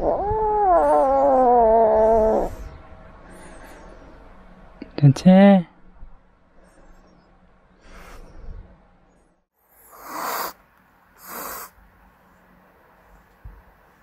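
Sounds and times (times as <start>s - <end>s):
kitten hissing: 9.8s - 10.6s, 11.2s - 11.8s.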